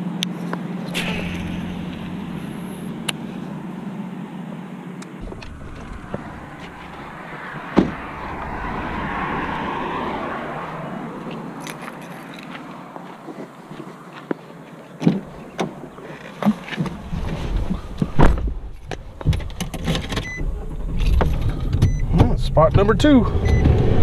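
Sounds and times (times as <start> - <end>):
steady background rumble: 0.8 - 11.6
truck door slamming: 0.9 - 3.7, 5.2 - 10.6.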